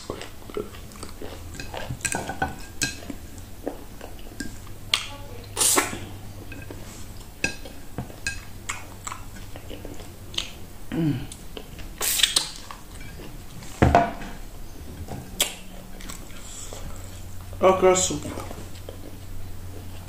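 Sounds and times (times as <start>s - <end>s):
wet chewing and smacking: 0.0s - 13.8s, 14.4s - 17.6s, 18.2s - 20.0s
loud slurp: 5.5s - 6.1s, 12.0s - 12.6s.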